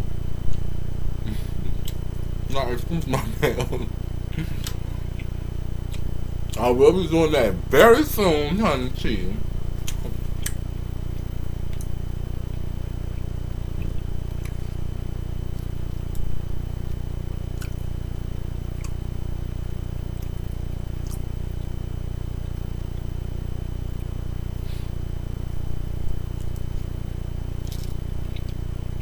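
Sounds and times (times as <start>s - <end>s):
low hum: 0.0s - 29.0s
quiet chewing: 0.5s - 2.3s, 4.3s - 6.6s, 9.8s - 18.0s, 18.6s - 19.1s, 20.0s - 21.8s, 25.9s - 26.9s, 27.5s - 29.0s.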